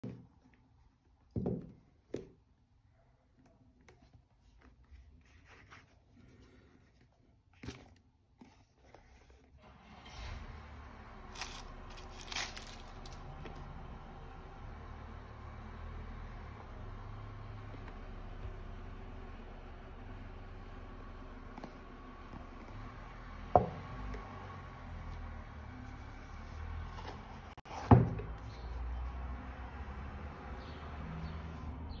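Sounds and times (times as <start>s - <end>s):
rustle and rumble: 8.9s - 13.9s.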